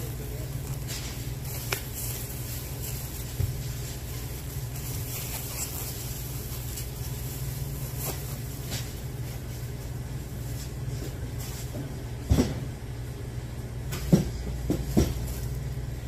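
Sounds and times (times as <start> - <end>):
plastic bags rustling: 0.0 - 11.7
low machinery hum: 0.0 - 16.0.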